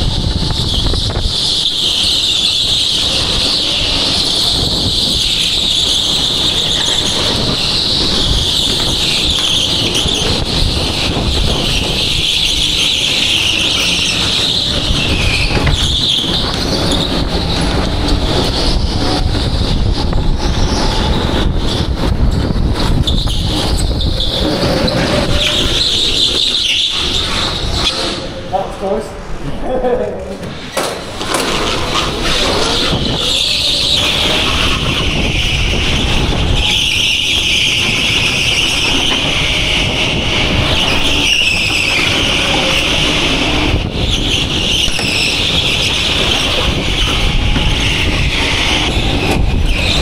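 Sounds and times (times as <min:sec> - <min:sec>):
go-kart engine whine: 0:00.0 - 0:28.5, 0:30.7 - 0:50.0.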